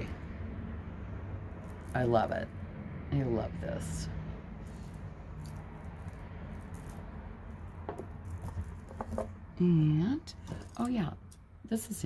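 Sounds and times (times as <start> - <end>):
beads rattling and clicking: 4.7 - 9.3.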